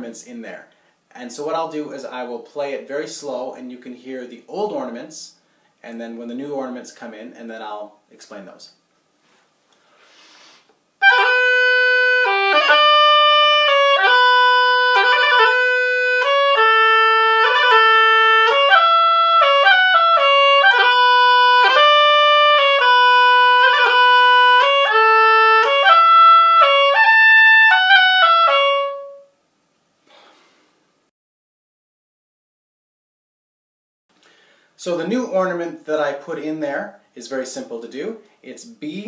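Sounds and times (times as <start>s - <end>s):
solo oboe tune: 11.0s - 29.4s.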